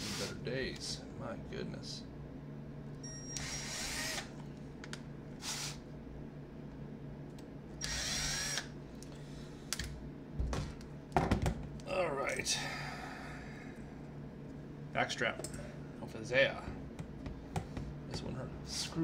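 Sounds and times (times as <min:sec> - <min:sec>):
impact driver bursts: 0:03.3 - 0:04.3, 0:07.8 - 0:08.7.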